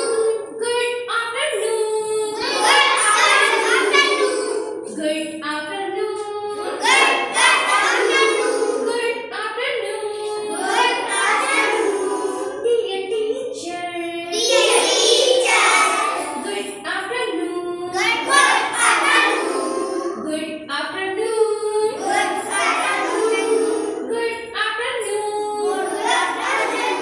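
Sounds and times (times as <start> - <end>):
children singing: 0.0 - 0.8, 1.5 - 5.0, 6.2 - 13.2, 14.3 - 20.5, 21.6 - 27.0.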